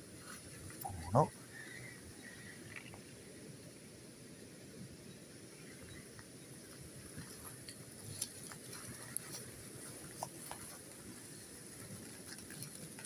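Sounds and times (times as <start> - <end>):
rustling of leaf litter: 6.7 - 13.0.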